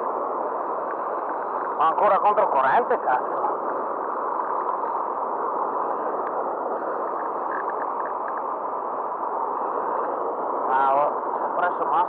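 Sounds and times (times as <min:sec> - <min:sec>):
faint ticks: 0:00.8 - 0:01.8, 0:06.2 - 0:06.4, 0:07.0 - 0:08.5.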